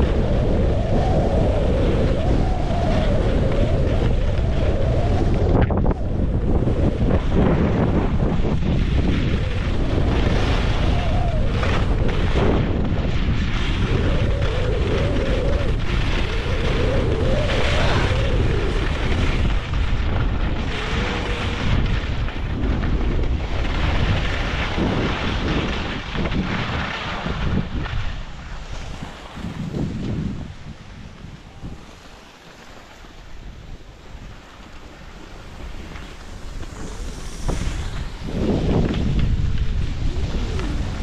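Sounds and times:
wind buffeting microphone: 0.0s - 41.0s
skis hissing on snow: 34.2s - 41.0s.

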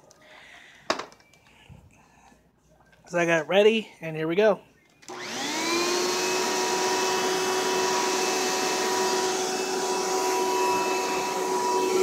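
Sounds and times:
vacuum cleaner running: 5.1s - 12.0s.

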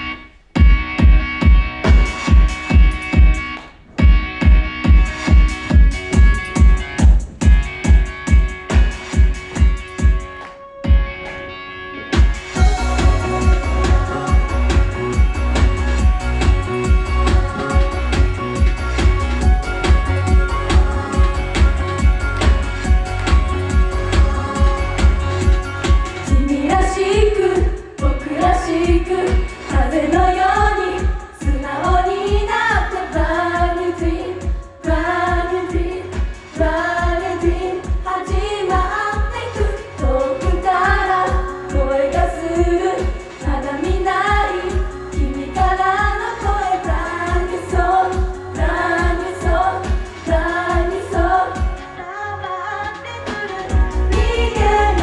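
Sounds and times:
pop backing track with kick drum: 0.6s - 52.0s, 52.8s - 55.0s
girls singing: 12.8s - 18.7s, 20.3s - 55.0s.

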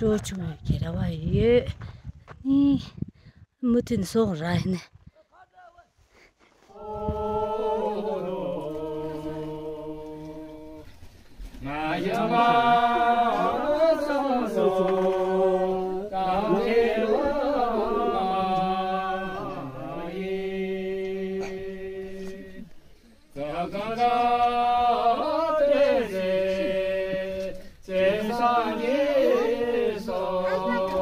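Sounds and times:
man singing unaccompanied: 11.6s - 22.7s, 23.4s - 31.0s.

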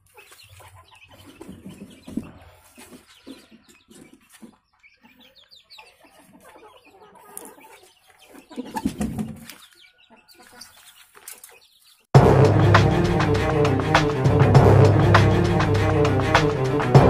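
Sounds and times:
chickens clucking: 0.0s - 12.1s.

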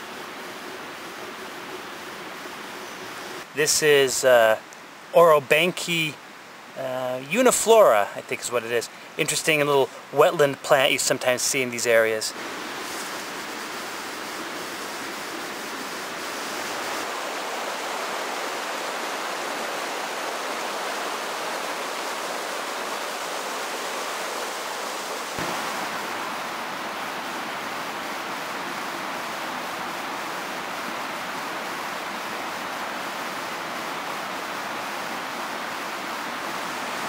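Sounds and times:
river rushing over rocks: 15.9s - 37.0s.

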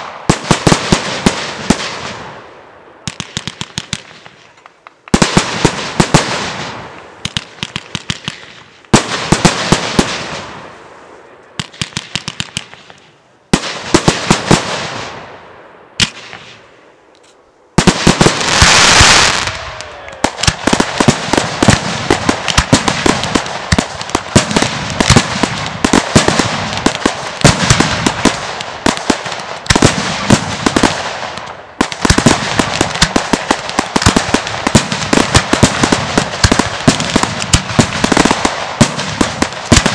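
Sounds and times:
firework crackling and popping: 0.0s - 2.4s, 3.0s - 10.8s, 11.6s - 15.2s, 17.8s - 39.9s
firework shells bursting: 11.6s - 14.9s
firework hiss: 18.1s - 19.6s.

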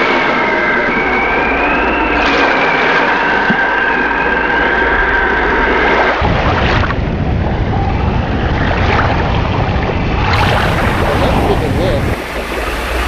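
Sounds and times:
wind rumbling on microphone: 0.0s - 13.0s
waterfall roaring: 10.3s - 13.0s.

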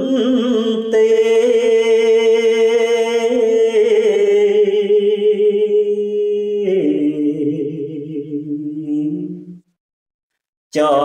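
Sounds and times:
man chanting verse: 10.7s - 11.0s.

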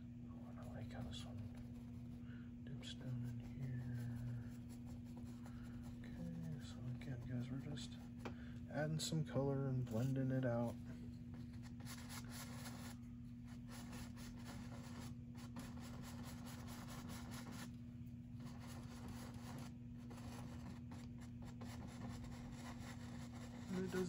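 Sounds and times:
steady low hum: 0.0s - 24.0s
paintbrush scrubbing canvas: 2.9s - 8.2s, 9.9s - 17.7s, 18.4s - 24.0s.

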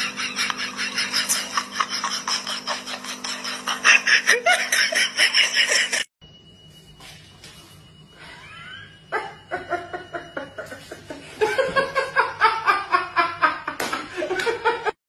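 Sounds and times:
person laughing hard: 0.0s - 6.1s
steady low hum: 0.0s - 15.0s.

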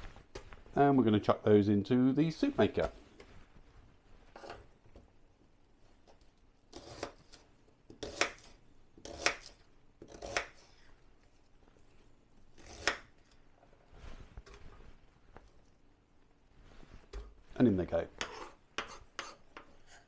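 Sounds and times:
knife chopping on wooden board: 8.0s - 10.6s, 12.6s - 13.1s.

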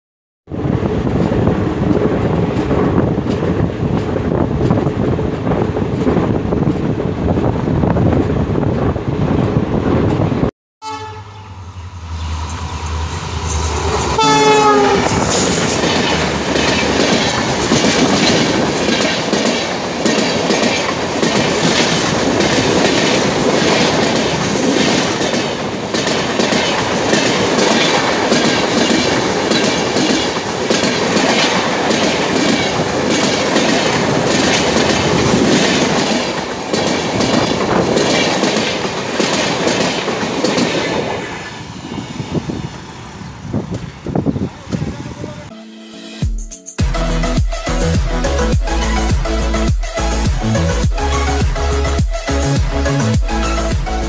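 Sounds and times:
train wheel rumble: 0.5s - 45.5s
locomotive horn: 10.8s - 11.7s, 14.1s - 15.6s
wheels clacking over rail joints: 13.6s - 41.6s.

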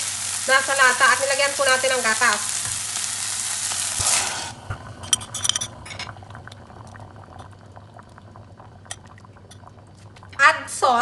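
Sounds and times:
sauce bubbling pops and crackles: 2.3s - 5.0s, 6.0s - 10.4s.

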